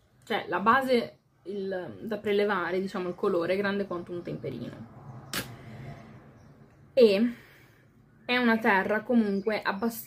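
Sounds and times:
short sharp click: 0:05.3 - 0:05.6.

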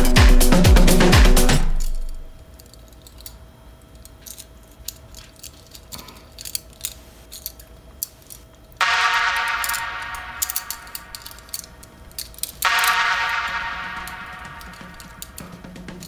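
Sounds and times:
background music: 0:00.0 - 0:02.2, 0:08.8 - 0:16.0
toy handcuffs clicking and rattling: 0:01.7 - 0:16.0.

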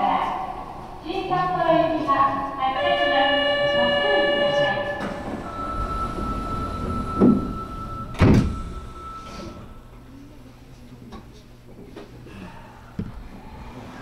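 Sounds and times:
steady warning tone: 0:00.0 - 0:10.5
door chime chord: 0:03.7 - 0:10.0
sliding doors thudding shut: 0:04.9 - 0:09.7.

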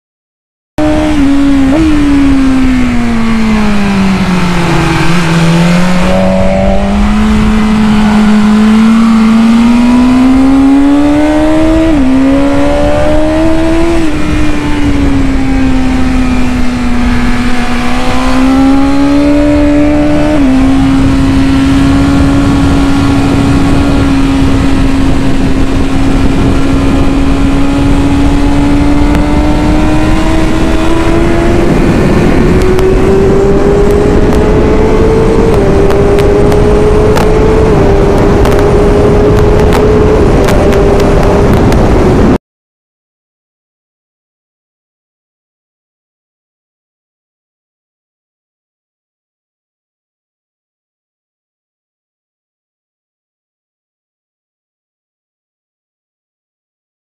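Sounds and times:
motorcycle engine revving: 0:00.8 - 0:42.4
wind rush: 0:00.8 - 0:42.4.

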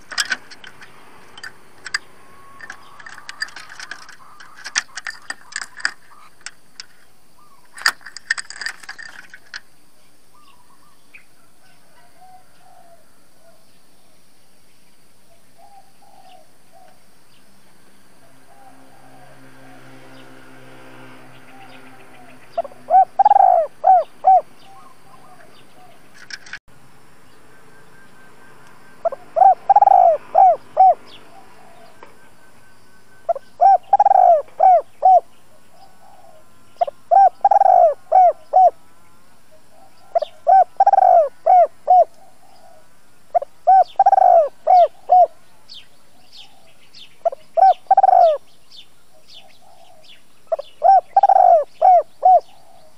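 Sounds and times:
dove cooing: 0:00.0 - 0:06.6, 0:10.4 - 0:13.6, 0:15.3 - 0:17.0, 0:18.2 - 0:20.2, 0:21.4 - 0:26.4, 0:29.0 - 0:32.4, 0:33.2 - 0:38.9, 0:39.5 - 0:52.9
small birds chirping faintly: 0:00.0 - 0:52.9.

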